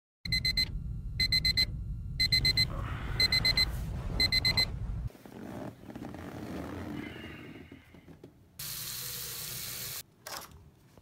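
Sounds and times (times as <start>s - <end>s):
alarm clock beeping: 0.3s - 4.7s
low steady hum: 0.3s - 5.2s.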